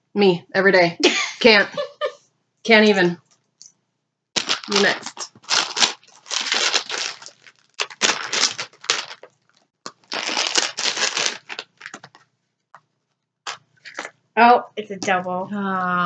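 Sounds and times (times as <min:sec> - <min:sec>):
plastic packet crinkling: 0:04.4 - 0:12.2.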